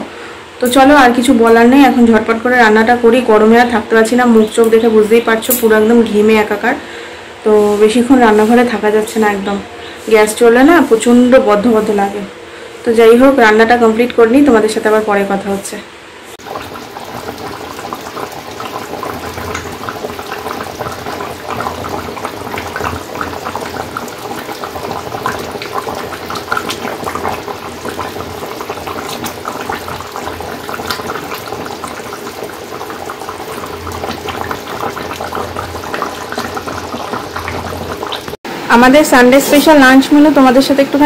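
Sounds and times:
curry bubbling and popping: 16.4 - 38.4.

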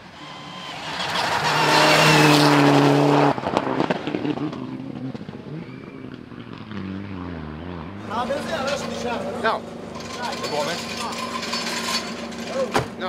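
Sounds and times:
rally car engine at high revs: 0.0 - 10.2
exhaust crackles and pops: 3.3 - 6.8.

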